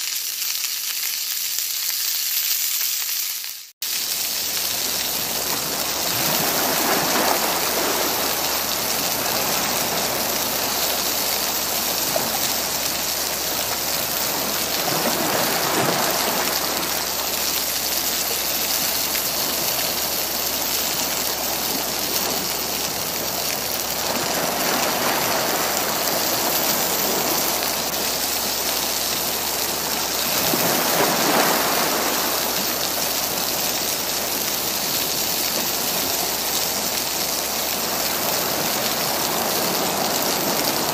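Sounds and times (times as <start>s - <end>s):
greens sizzling in a wok: 0.0s - 6.1s
small waves washing against rocks: 4.4s - 40.9s.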